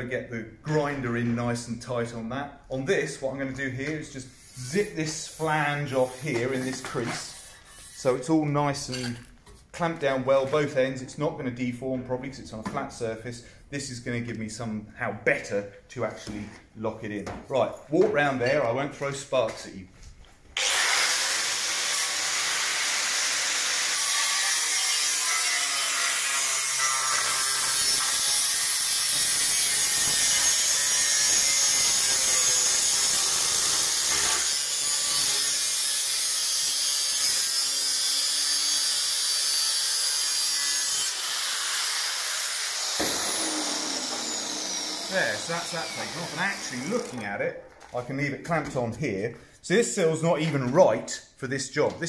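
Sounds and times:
angle grinder cutting steel: 0:04.3 - 0:08.2, 0:20.6 - 0:47.4.

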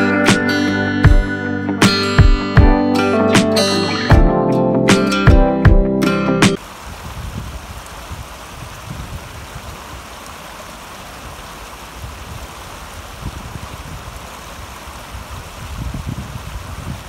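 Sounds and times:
stream running over rocks: 0:06.6 - 0:17.0.

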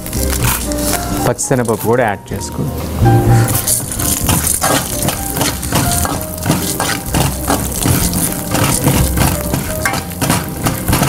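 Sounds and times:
oil sizzling: 0:00.0 - 0:11.0
metal spoon scraping a pan: 0:03.5 - 0:11.0.

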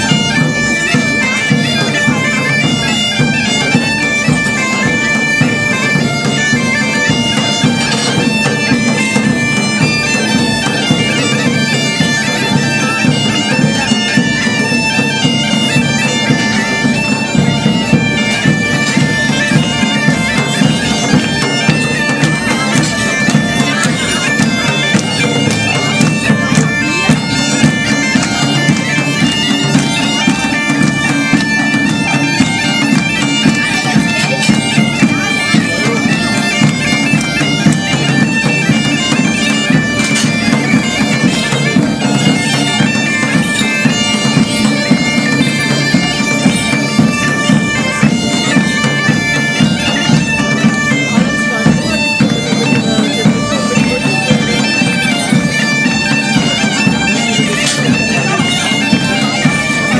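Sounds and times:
bagpipes playing dance tune: 0:00.0 - 0:59.9
hand drums beating: 0:00.0 - 0:59.9.

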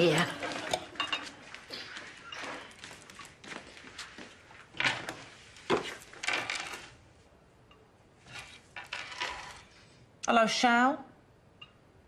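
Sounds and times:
crockery and cutlery clattering: 0:00.0 - 0:02.8.

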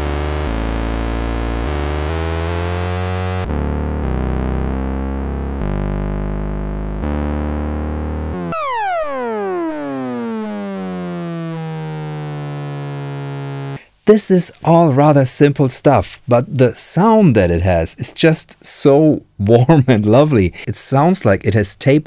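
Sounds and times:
downward sweeping synth tone: 0:00.0 - 0:13.8
synthesizer low held notes: 0:00.0 - 0:13.8.

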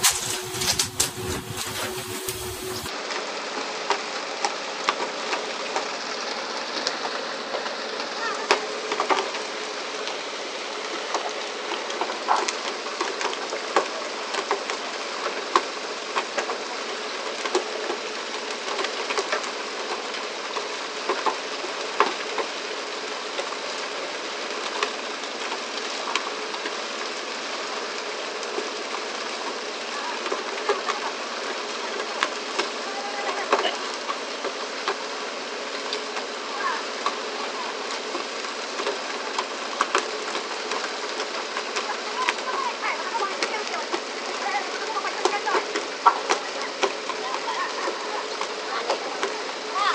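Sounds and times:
water spray rushing: 0:00.0 - 0:03.0
boat noise: 0:00.0 - 0:03.2, 0:05.0 - 0:49.9.

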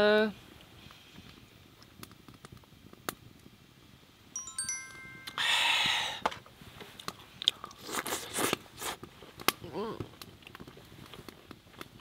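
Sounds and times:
twinkling bell chime: 0:04.4 - 0:06.2
breathy exhale: 0:05.4 - 0:06.3.

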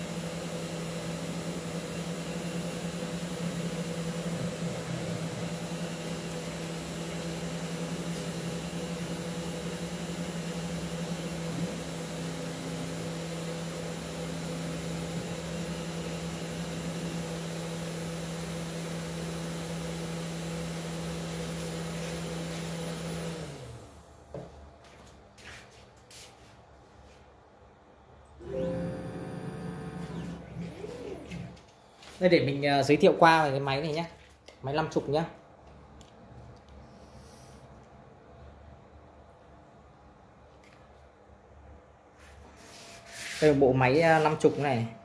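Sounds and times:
spindle motor humming: 0:28.4 - 0:31.6.

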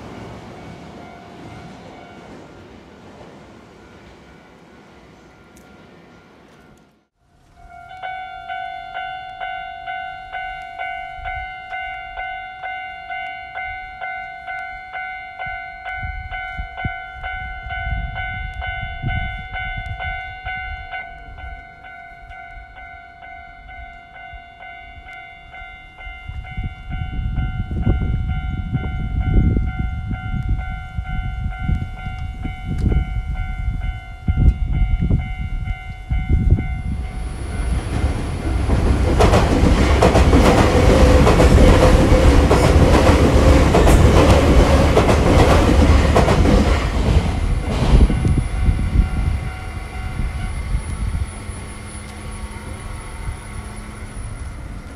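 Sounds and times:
level crossing warning bell: 0:07.5 - 0:54.9
train wheels clattering over rail joints: 0:37.9 - 0:48.4.

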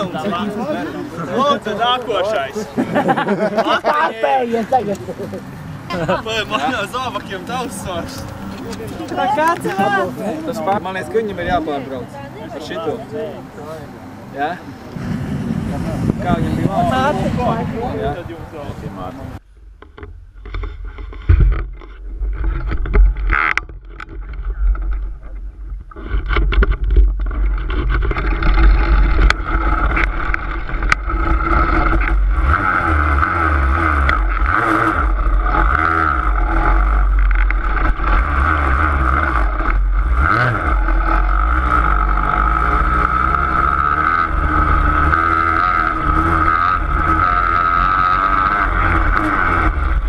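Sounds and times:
engine running at steady revs: 0:28.5 - 0:50.0.

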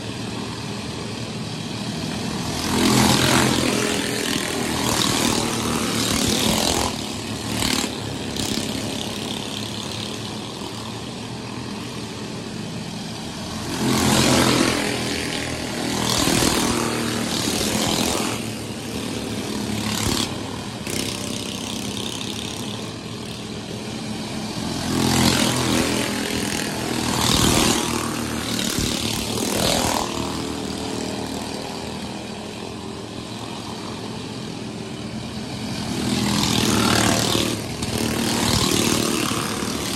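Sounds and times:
race car engines passing by: 0:00.0 - 0:39.9.

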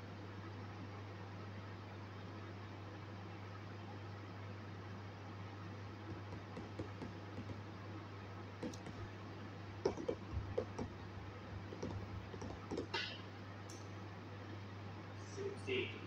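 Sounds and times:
low room hum: 0:00.0 - 0:16.0
calculator keys clicking: 0:08.6 - 0:09.0, 0:09.9 - 0:10.9, 0:11.7 - 0:12.9.

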